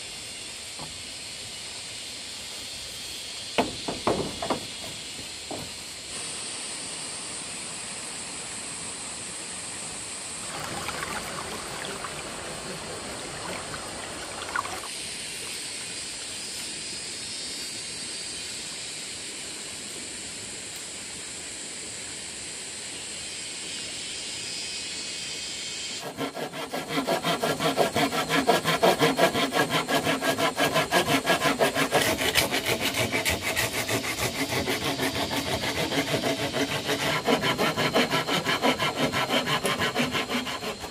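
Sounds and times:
steady high hiss: 0:00.0 - 0:27.0
hand saw cutting bamboo: 0:03.6 - 0:05.8, 0:26.0 - 0:40.9.

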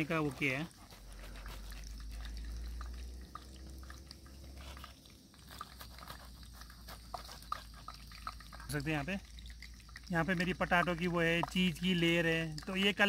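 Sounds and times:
knife crunching fried bread: 0:00.0 - 0:03.2, 0:03.8 - 0:08.6
low steady rumble: 0:00.0 - 0:12.8.

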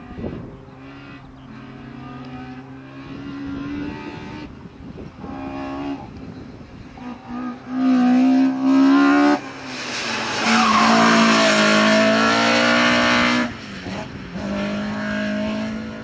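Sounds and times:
car engine revving hard: 0:00.0 - 0:04.6, 0:07.0 - 0:16.0
tyres squealing: 0:10.4 - 0:11.5.

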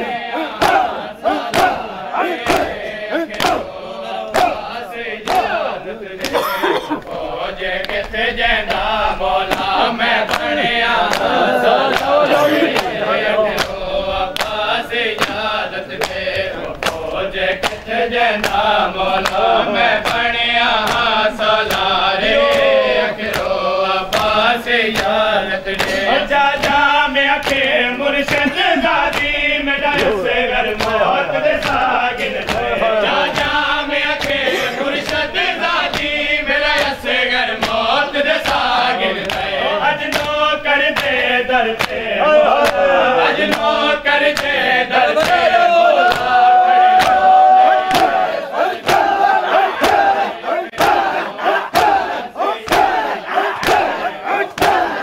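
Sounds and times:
men chanting: 0:00.0 - 0:55.0
open-handed chest slaps: 0:02.5 - 0:02.7, 0:53.6 - 0:54.0.

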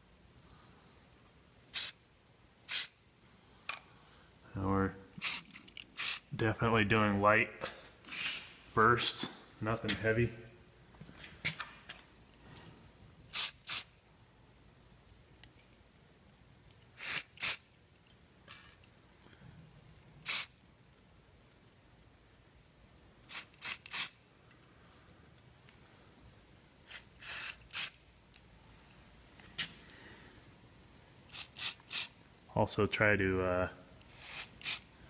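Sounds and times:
crickets trilling: 0:00.0 - 0:35.0
spray paint can hissing: 0:01.7 - 0:02.0, 0:02.7 - 0:03.0, 0:05.2 - 0:06.3, 0:13.3 - 0:13.9, 0:17.0 - 0:17.7, 0:20.2 - 0:20.6, 0:23.3 - 0:24.2, 0:26.9 - 0:28.0, 0:31.3 - 0:32.2, 0:34.1 - 0:34.9.

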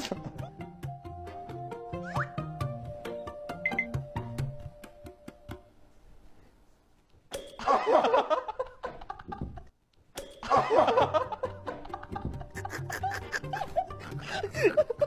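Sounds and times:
people laughing loudly: 0:07.6 - 0:09.7, 0:10.4 - 0:15.0.

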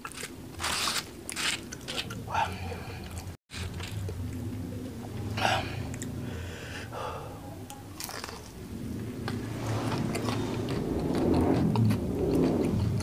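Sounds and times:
crisp crunches of chewing: 0:00.0 - 0:04.1, 0:08.0 - 0:08.5
wet chewing: 0:00.0 - 0:04.6, 0:09.9 - 0:13.0.

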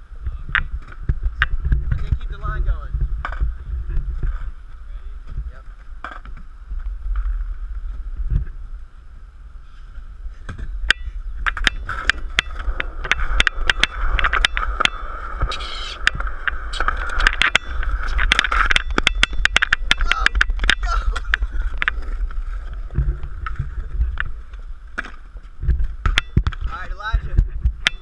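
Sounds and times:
skateboard wheels rolling on concrete: 0:00.0 - 0:28.0
skateboard wheels clicking over cracks: 0:05.7 - 0:06.5, 0:10.4 - 0:26.8.

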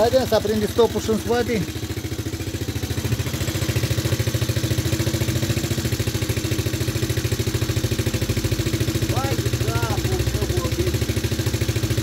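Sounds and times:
quad bike engine idling: 0:00.0 - 0:12.0.

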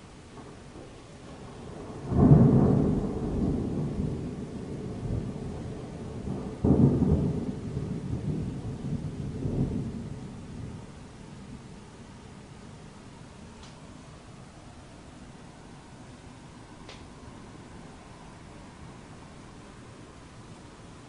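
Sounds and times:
thunder rumbling and clapping: 0:00.4 - 0:10.9.

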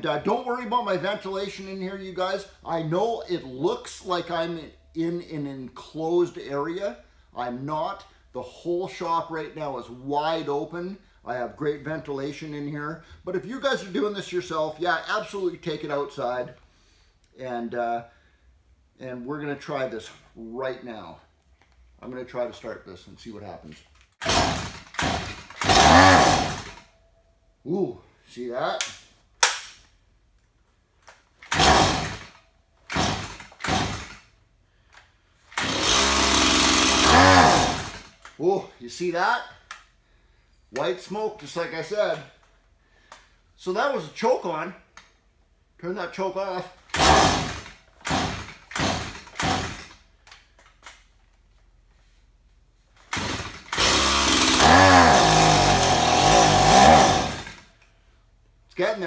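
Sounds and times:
recoil starter cord pulls: 0:24.0 - 0:26.9, 0:31.0 - 0:34.3, 0:34.9 - 0:38.4, 0:46.8 - 0:51.1, 0:53.0 - 0:57.9
chainsaw engine turning over: 0:24.2 - 0:26.9, 0:31.4 - 0:34.2, 0:35.5 - 0:38.3, 0:46.8 - 0:50.0, 0:53.0 - 0:57.8.

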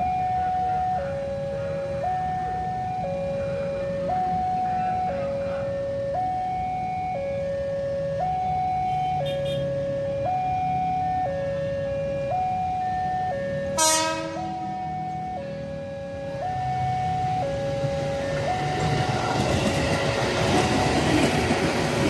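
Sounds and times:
level crossing two-tone alarm: 0:00.0 - 0:21.6
electric train rumbling: 0:12.2 - 0:22.0
train horn blast: 0:13.8 - 0:14.6.

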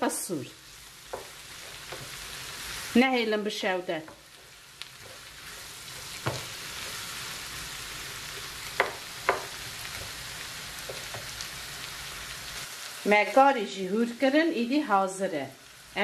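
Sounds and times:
onions sizzling in a frying pan: 0:00.0 - 0:16.0
wooden spoon knocking on pan: 0:01.0 - 0:02.2, 0:04.0 - 0:05.3, 0:06.0 - 0:06.6, 0:08.7 - 0:10.2, 0:10.8 - 0:11.4.

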